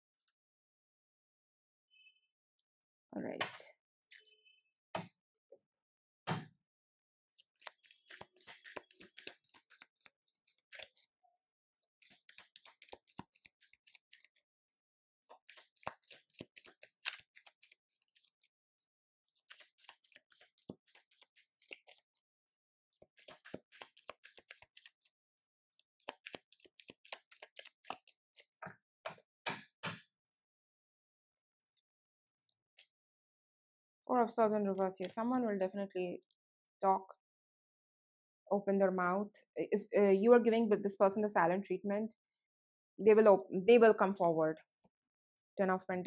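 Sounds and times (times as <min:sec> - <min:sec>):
cards being shuffled by hand: 0:07.4 - 0:11.1, 0:12.0 - 0:14.4, 0:15.3 - 0:18.5, 0:19.3 - 0:22.2, 0:23.0 - 0:25.1, 0:25.8 - 0:28.6.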